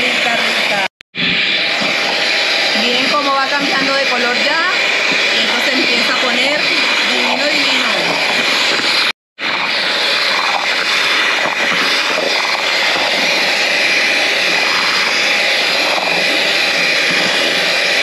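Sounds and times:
electric hand mixer running: 0:00.0 - 0:18.0.

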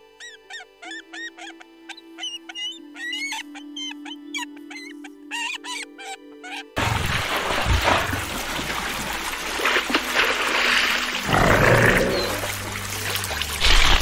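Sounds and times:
water trickling and sloshing: 0:06.8 - 0:14.0.

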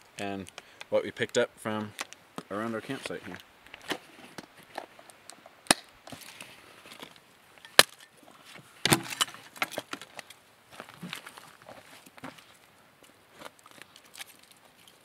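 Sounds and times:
dry sticks clacking and snapping: 0:13.4 - 0:15.0.

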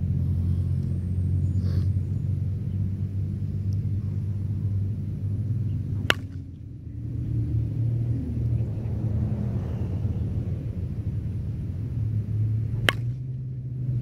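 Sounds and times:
low rumble: 0:00.0 - 0:14.0
bat cracking a softball: 0:05.8 - 0:06.9, 0:10.8 - 0:14.0.

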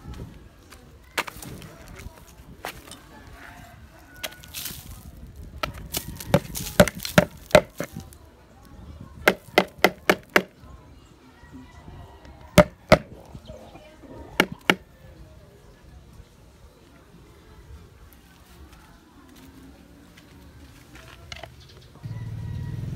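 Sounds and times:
knocks on plastic bowl: 0:05.6 - 0:07.9, 0:09.3 - 0:10.5, 0:12.6 - 0:13.1, 0:14.4 - 0:14.8.

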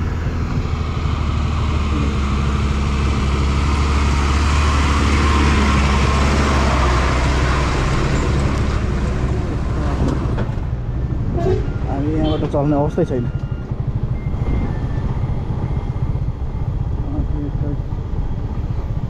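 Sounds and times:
motorcycle engine running: 0:00.0 - 0:07.8, 0:13.6 - 0:19.0
wind and road noise: 0:00.0 - 0:19.0.

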